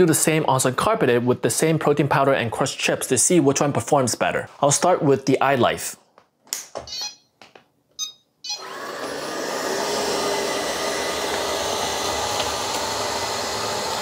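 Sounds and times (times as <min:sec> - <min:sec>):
brief beep: 0:06.9 - 0:07.2, 0:08.0 - 0:08.6
robot vacuum motor and brushes: 0:08.5 - 0:14.0.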